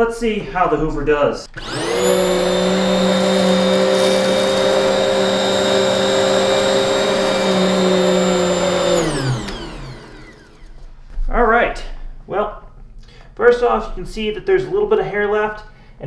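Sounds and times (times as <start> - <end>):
vacuum cleaner running: 1.5 - 11.0
vacuum motor spinning down: 1.5 - 11.0.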